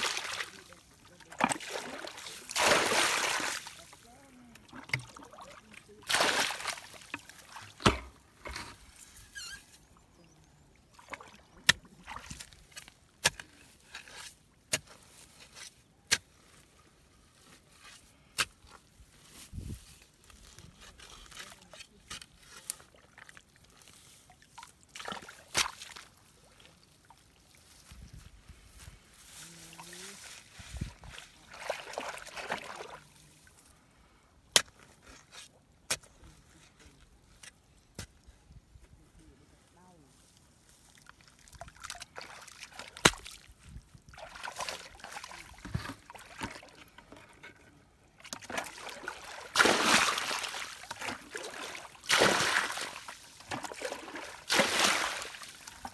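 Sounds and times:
bare feet slapping in muddy water: 0.0 - 0.7, 1.3 - 4.0, 4.6 - 8.0, 10.9 - 13.0, 24.2 - 27.8, 29.6 - 33.2, 40.8 - 47.2, 48.2 - 55.9
water sloshing: 0.0 - 8.5, 29.6 - 33.1, 40.8 - 47.6, 48.2 - 55.9
tool knocking mud bank: 7.8 - 8.2.

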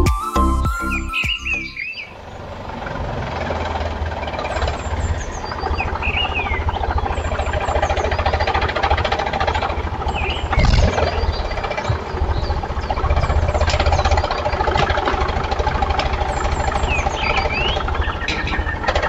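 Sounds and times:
background music: 0.0 - 1.8
birds chirping: 0.0 - 2.6, 3.4 - 19.0
small motor pulsing rumble: 2.2 - 19.0.

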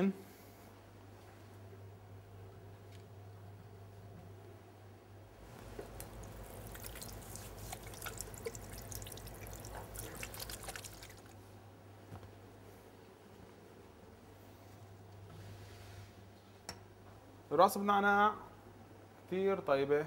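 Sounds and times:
water splashing and dripping: 5.6 - 11.4.

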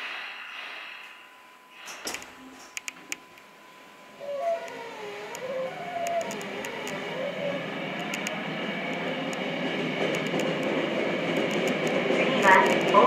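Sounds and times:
subway train whine: 0.0 - 13.0
sharp clicks and clunks: 10.0 - 13.0.

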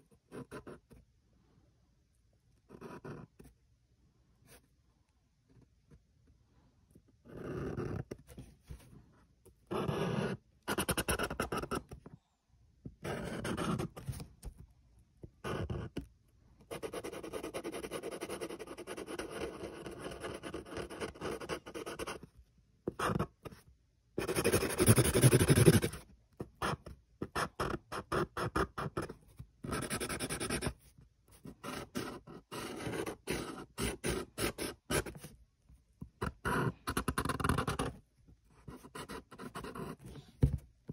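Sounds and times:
marker scribbling on paper: 24.2 - 26.0, 29.7 - 30.7, 31.4 - 35.3.

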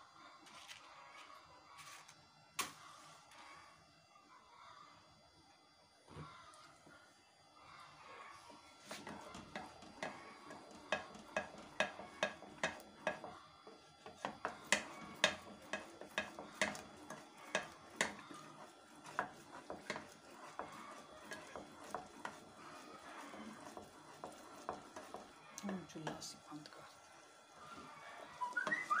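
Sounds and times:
wooden spoon scraping saucepan: 8.8 - 29.0.

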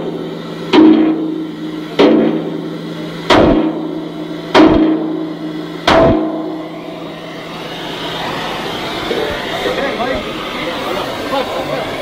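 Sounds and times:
hammer striking steel: 0.0 - 6.6.

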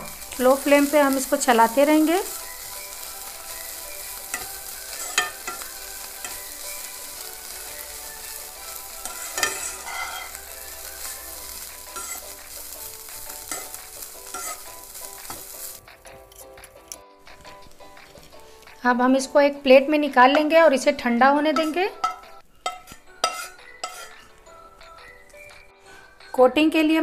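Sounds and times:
chicken sizzling in oil: 0.0 - 15.9
spatula scraping pan: 0.1 - 16.5, 21.6 - 24.4.

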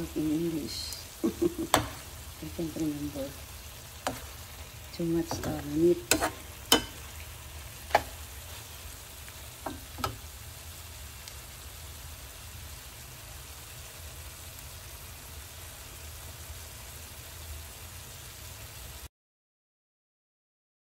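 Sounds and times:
food sizzling in a pan: 0.0 - 19.1
spatula clicking against pan: 5.3 - 7.1, 7.8 - 8.2.

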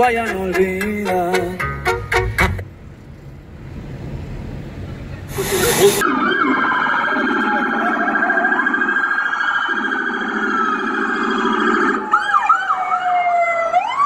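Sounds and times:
hiss burst: 5.3 - 6.0
emergency sirens wailing: 6.0 - 14.0.

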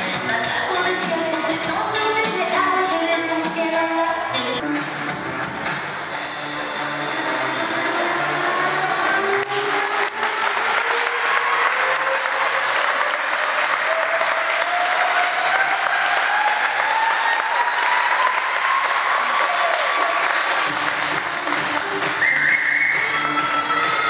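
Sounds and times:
audience applauding: 8.9 - 24.0.

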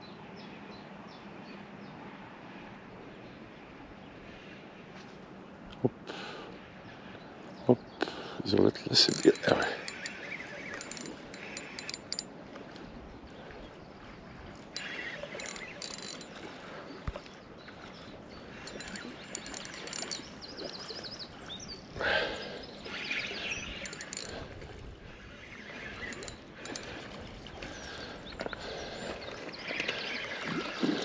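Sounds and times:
fishing reel clicking and whirring: 8.9 - 12.3, 14.8 - 16.4, 18.6 - 20.4, 23.8 - 24.6, 25.9 - 27.1.

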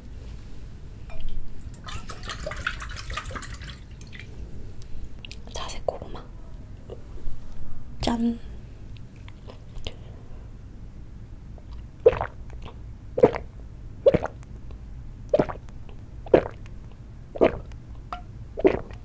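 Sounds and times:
person gulping and swallowing: 11.6 - 13.5, 14.1 - 14.4, 15.3 - 16.7, 17.4 - 17.8, 18.6 - 19.0.

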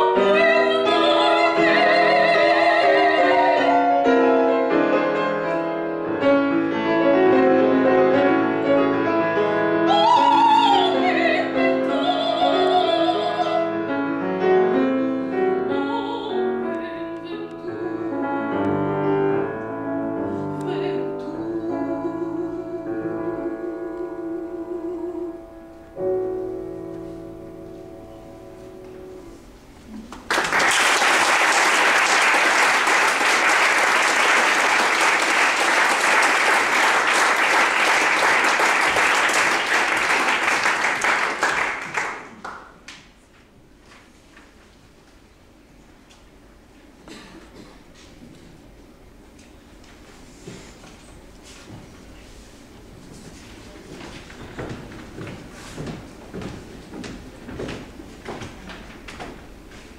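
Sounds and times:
operatic soprano singing: 0.0 - 4.2, 9.9 - 13.7, 15.6 - 18.7, 20.6 - 25.7
grand piano: 0.0 - 43.8, 44.4 - 59.9
audience applause: 30.1 - 42.7.

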